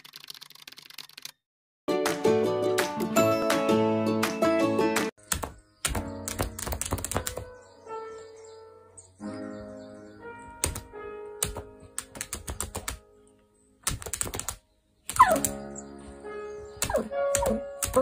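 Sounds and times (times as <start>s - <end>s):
claws tapping a screen: 5.3s - 7.5s, 13.8s - 15.7s.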